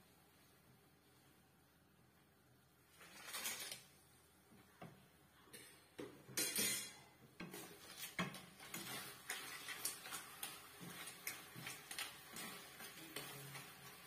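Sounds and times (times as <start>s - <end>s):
spatula stirring clams in wok: 7.4s - 14.0s.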